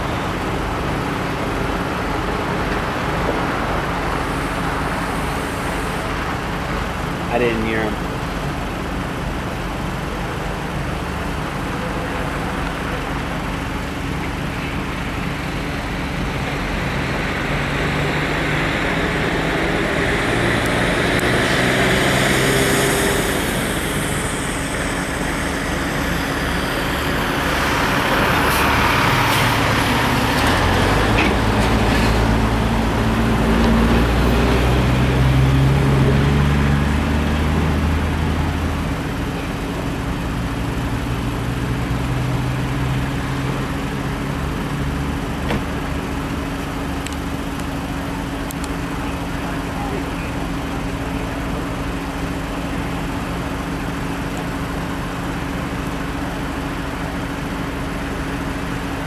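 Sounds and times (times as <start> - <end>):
diesel locomotives idling: 0.0 - 59.0
truck driving past: 0.0 - 59.0
vehicle passing: 14.8 - 38.8.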